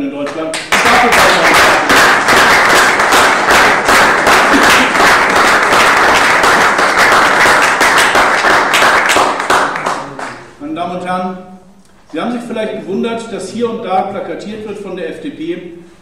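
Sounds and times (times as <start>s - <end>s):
audience applauding: 0.5s - 10.5s.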